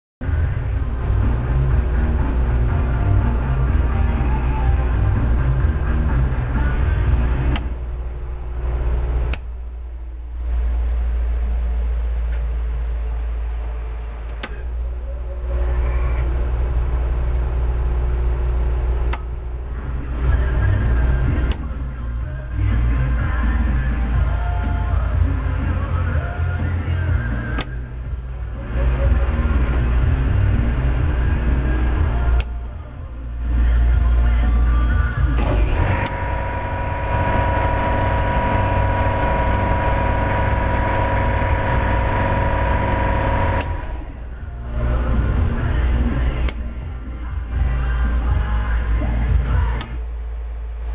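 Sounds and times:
heavy electric machine running: 0.2 - 50.9
low hum: 0.2 - 50.9
switch click: 7.5 - 7.7, 9.3 - 9.5, 14.3 - 14.6, 19.0 - 19.3, 27.5 - 27.8, 43.6 - 43.9
electric shop machine running: 35.2 - 47.0.

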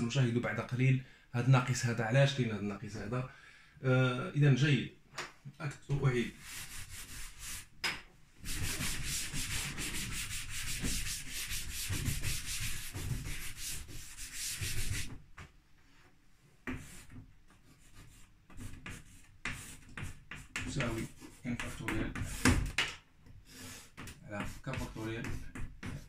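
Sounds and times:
cloth wiping chalkboard: 6.1 - 7.8, 8.4 - 15.2, 15.8 - 22.6, 23.6 - 26.0
chalk tapping and scratching: 6.3 - 7.7, 8.4 - 15.5, 16.6 - 22.9, 23.6 - 26.0.

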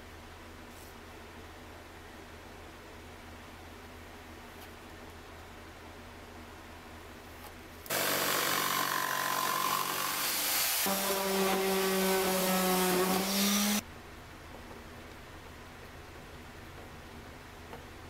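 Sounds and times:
jigsaw cutting plywood: 7.9 - 13.8.

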